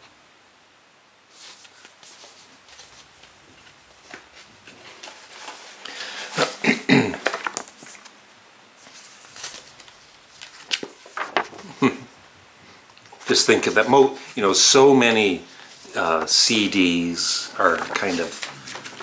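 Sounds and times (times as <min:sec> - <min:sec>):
cd case rustling and clicking: 0:07.2 - 0:08.1, 0:09.4 - 0:11.6.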